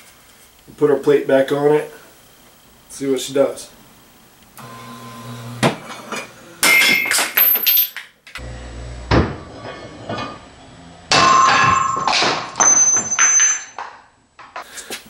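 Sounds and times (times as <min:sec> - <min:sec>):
low motor hum: 0:04.5 - 0:06.5, 0:08.4 - 0:11.1.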